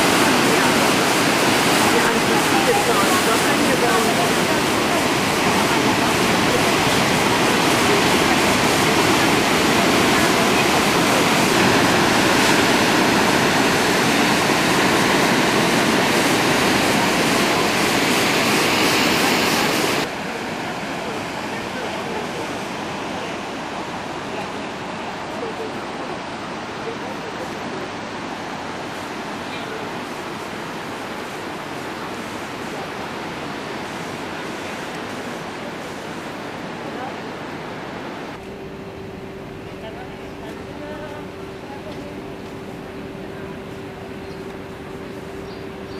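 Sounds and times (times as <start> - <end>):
surf crashing on rocks: 0.0 - 25.3.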